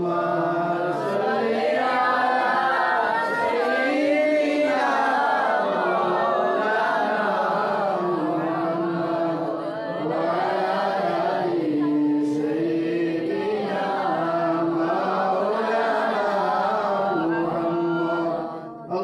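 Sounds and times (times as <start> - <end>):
man chanting through microphone: 0.0 - 1.2, 5.8 - 19.0.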